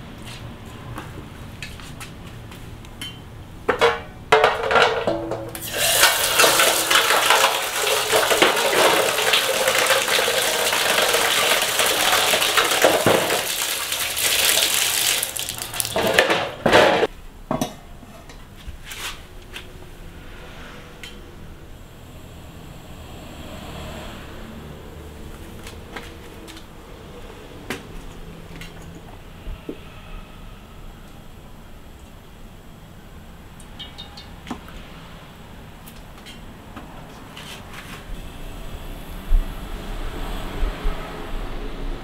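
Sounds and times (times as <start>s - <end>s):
board and plate knocking metal: 3.7s - 5.5s, 12.8s - 13.4s
water pouring into metal basin: 5.6s - 16.2s.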